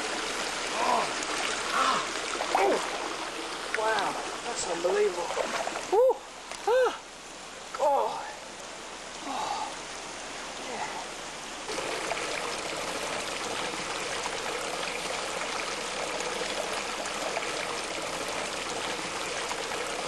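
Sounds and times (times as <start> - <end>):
water running into pool: 0.0 - 8.2, 9.0 - 20.0.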